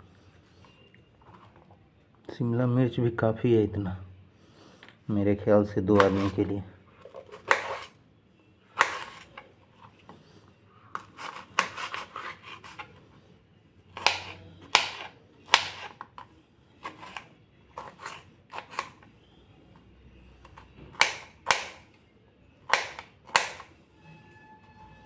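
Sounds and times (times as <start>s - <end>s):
knife slicing on cutting board: 6.0s - 6.4s, 7.3s - 7.9s, 8.8s - 9.3s, 11.0s - 12.9s.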